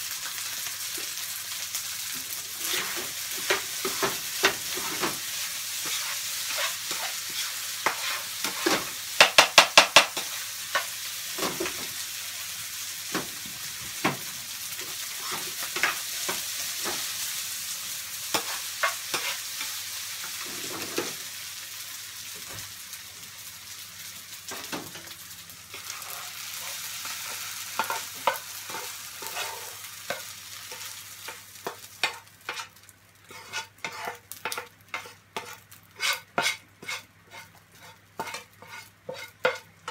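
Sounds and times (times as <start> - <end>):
rice sizzling in a frying pan: 0.0 - 39.9
spoon scraping and knocking on pan: 2.6 - 11.9, 18.3 - 21.2, 25.7 - 32.7, 33.3 - 39.9.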